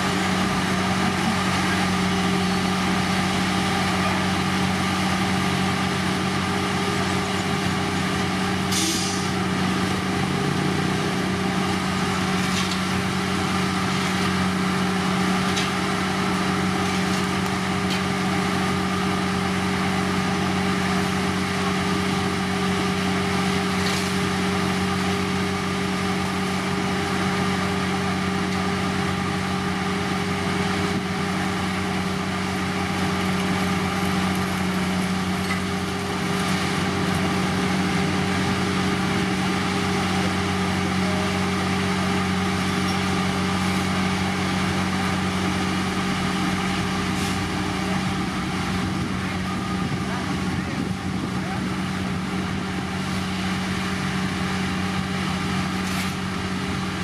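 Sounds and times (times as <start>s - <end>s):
heavy diesel machinery drone: 0.0s - 57.0s
short hiss: 8.7s - 9.3s.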